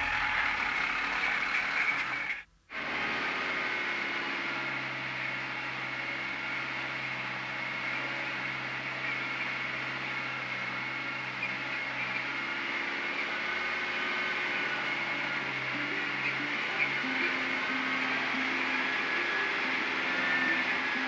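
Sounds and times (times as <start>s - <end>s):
diesel truck engine droning: 0.0s - 2.4s.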